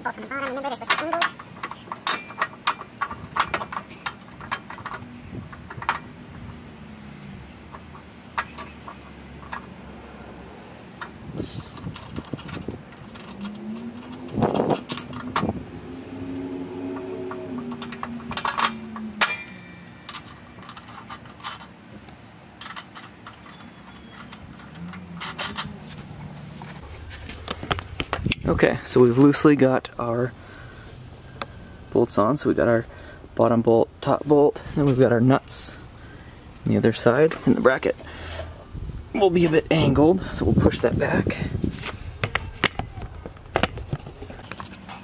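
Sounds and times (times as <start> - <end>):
metal bolts clicking and clinking: 0.1 - 9.9, 10.9 - 15.7, 16.3 - 21.8, 22.5 - 26.2.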